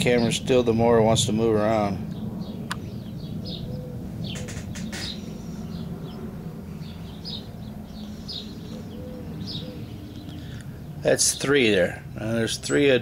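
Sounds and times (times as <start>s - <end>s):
birds chirping: 0.0s - 13.0s
steady low rumble: 0.0s - 13.0s
sharp clicks: 4.4s - 5.2s.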